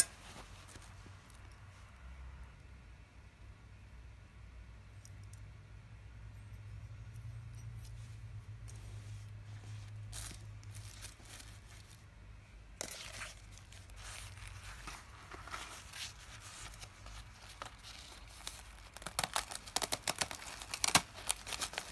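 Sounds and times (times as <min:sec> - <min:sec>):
plastic and cloth rustling: 0:00.0 - 0:01.9, 0:07.9 - 0:21.9
low steady hum: 0:00.0 - 0:21.9.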